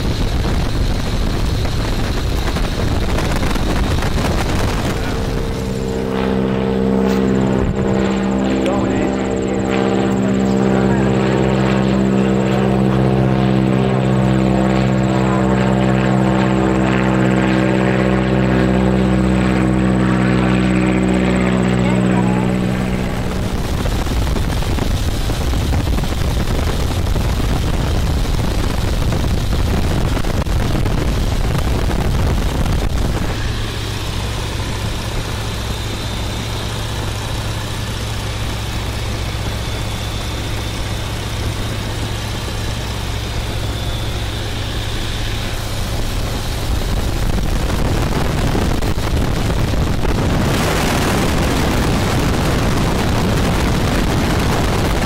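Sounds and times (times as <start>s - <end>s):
airplane engine drone: 0.0s - 55.0s
wind rushing over microphone: 0.0s - 55.0s.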